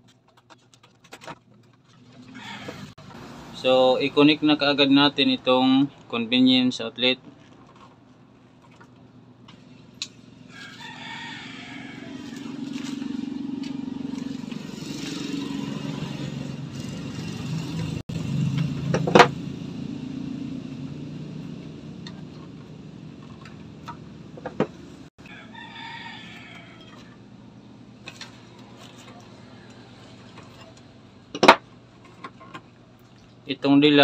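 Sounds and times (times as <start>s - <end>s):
passing vehicle: 2.2s - 6.1s, 9.4s - 25.1s
rooster crowing: 2.3s - 3.0s, 10.4s - 16.2s, 25.2s - 27.3s, 29.1s - 30.2s.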